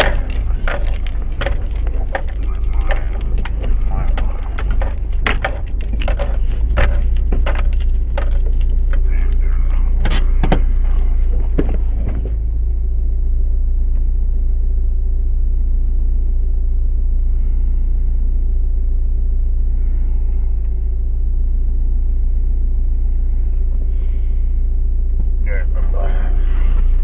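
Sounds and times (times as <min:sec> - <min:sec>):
sharp clicks and clattering: 0:00.0 - 0:12.4
loud steady low hum: 0:00.0 - 0:27.0.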